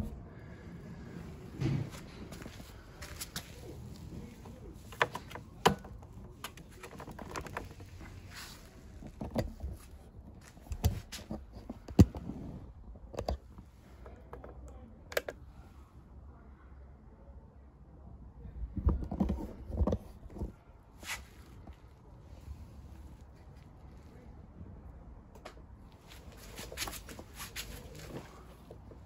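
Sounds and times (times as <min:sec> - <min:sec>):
clicks and knocks of scooter controls: 0:04.4 - 0:08.1, 0:09.0 - 0:12.2, 0:13.1 - 0:15.4.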